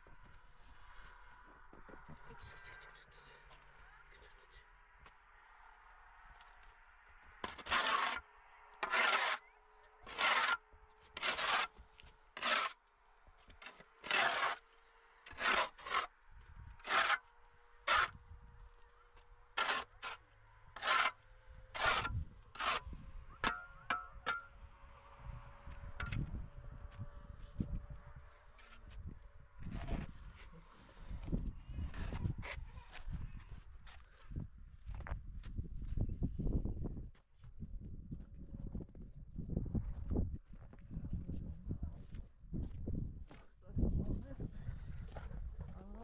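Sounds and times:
shovel scraping snow off concrete: 0:07.4 - 0:09.4, 0:10.0 - 0:10.6, 0:11.2 - 0:11.8, 0:12.4 - 0:12.8, 0:13.6 - 0:16.1, 0:16.8 - 0:17.2, 0:17.8 - 0:18.2, 0:19.6 - 0:20.2, 0:20.8 - 0:21.2, 0:21.8 - 0:24.5.

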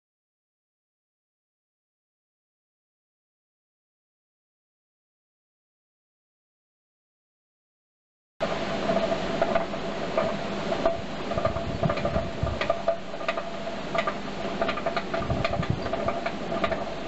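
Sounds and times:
forge fire crackling: 0:08.4 - 0:17.0
steady hum: 0:08.4 - 0:17.0.

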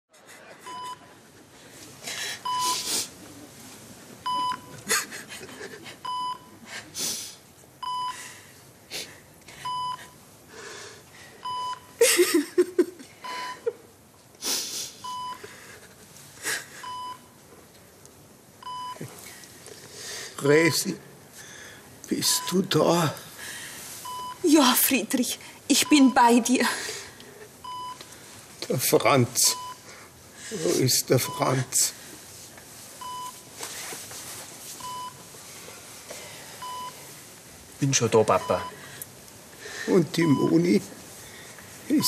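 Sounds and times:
patient monitor beeping: 0:00.6 - 0:01.1, 0:02.4 - 0:03.0, 0:04.2 - 0:05.0, 0:06.0 - 0:06.7, 0:07.8 - 0:08.3, 0:09.5 - 0:10.2, 0:11.4 - 0:12.4, 0:13.2 - 0:13.8, 0:15.0 - 0:15.5, 0:16.8 - 0:17.4, 0:18.6 - 0:19.1, 0:22.2 - 0:22.8, 0:24.0 - 0:24.8, 0:25.7 - 0:26.5, 0:27.6 - 0:28.1, 0:28.9 - 0:30.0, 0:31.2 - 0:31.9, 0:33.0 - 0:33.7, 0:34.8 - 0:35.3, 0:36.6 - 0:37.2, 0:37.9 - 0:39.0, 0:39.9 - 0:40.8
person sobbing: 0:12.0 - 0:13.8
sniffling and breathing: 0:14.4 - 0:17.1.

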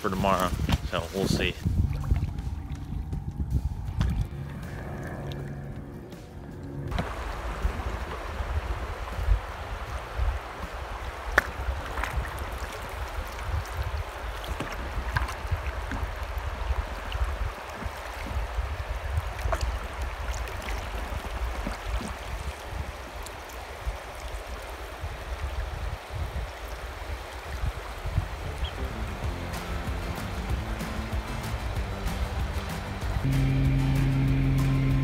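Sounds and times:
wind buffeting microphone: 0:00.0 - 0:31.3
water slaps: 0:00.2 - 0:33.3
river water rushing: 0:06.3 - 0:33.3.

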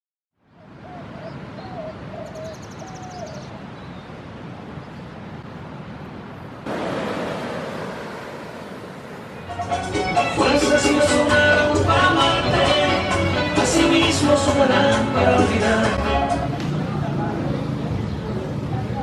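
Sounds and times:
wind: 0:00.3 - 0:19.0
surf washing on shore: 0:04.2 - 0:11.4.

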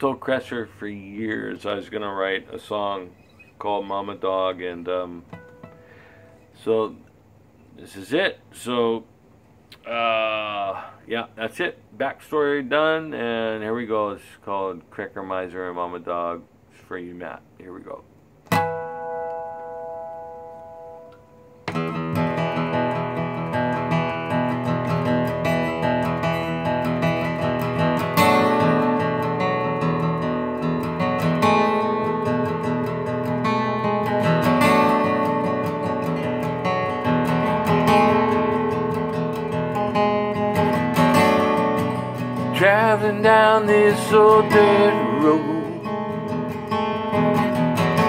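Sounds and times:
acoustic guitar chords: 0:00.0 - 0:07.6, 0:18.1 - 0:48.0.

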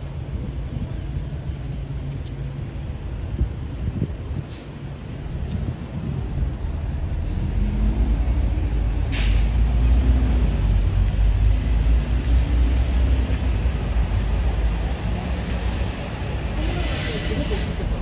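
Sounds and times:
road traffic rumbling: 0:00.0 - 0:18.0
faint high squeal: 0:11.1 - 0:13.1.

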